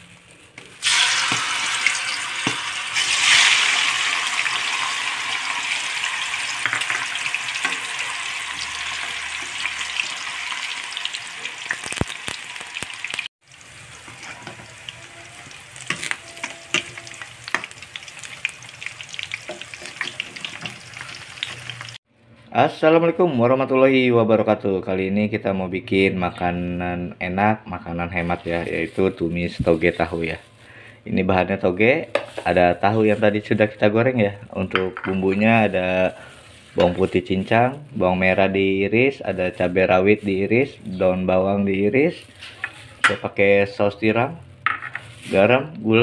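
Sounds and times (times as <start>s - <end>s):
tofu sizzling in hot oil: 0.8s - 22.0s
sharp clicks and crackles: 11.7s - 13.3s.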